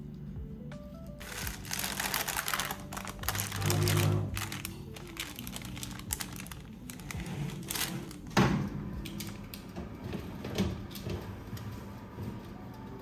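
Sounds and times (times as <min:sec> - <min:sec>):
paper rustling: 0:01.2 - 0:08.3.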